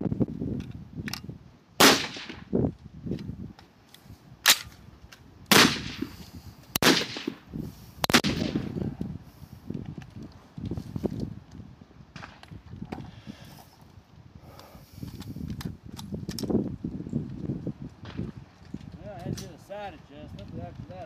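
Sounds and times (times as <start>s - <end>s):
rifle shots with echo: 1.8s - 2.5s, 5.5s - 6.1s, 6.8s - 7.4s, 8.0s - 8.8s.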